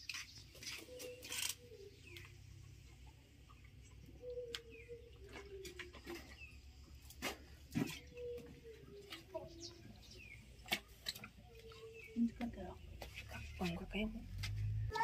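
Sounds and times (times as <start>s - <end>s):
bird cooing: 0.7s - 2.3s, 4.0s - 6.5s, 7.8s - 9.8s.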